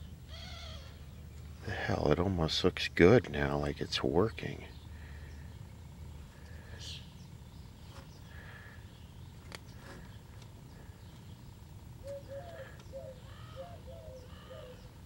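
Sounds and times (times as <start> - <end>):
steady low hum: 0.0 - 15.0
bird chirping: 3.8 - 15.0.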